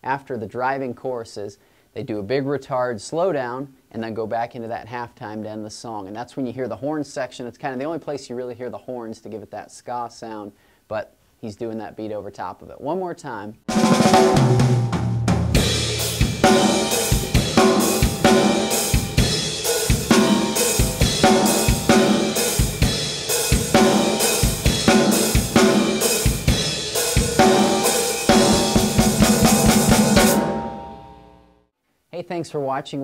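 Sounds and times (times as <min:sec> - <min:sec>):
drum kit groove: 0:13.7 - 0:31.4.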